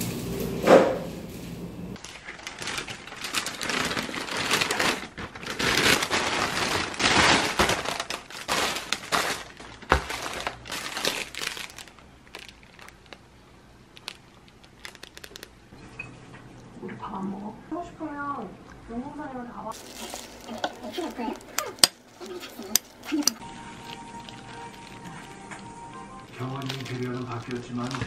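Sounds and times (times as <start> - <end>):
plastic bags crinkling: 2.0 - 15.7, 19.7 - 28.0.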